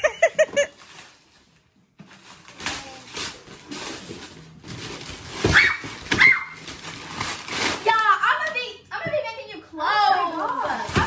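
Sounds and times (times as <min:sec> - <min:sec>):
wrapping paper tearing and rustling: 0:00.6 - 0:08.5, 0:10.0 - 0:11.0.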